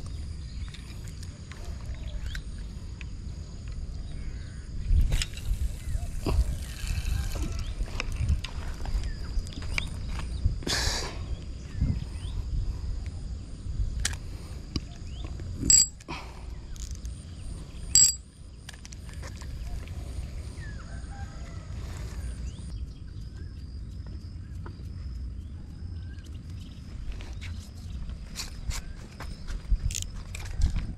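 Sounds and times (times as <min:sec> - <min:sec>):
high-pitched insect drone: 0:00.0 - 0:26.8
sharp ringing clicks: 0:17.9 - 0:18.3.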